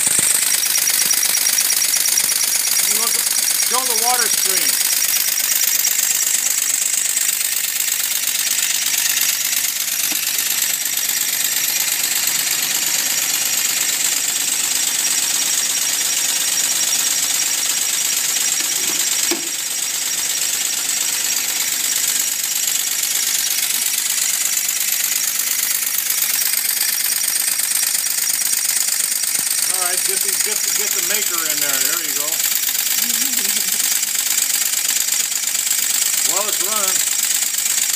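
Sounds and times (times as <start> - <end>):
model fire engine pumping water: 0.0 - 37.9.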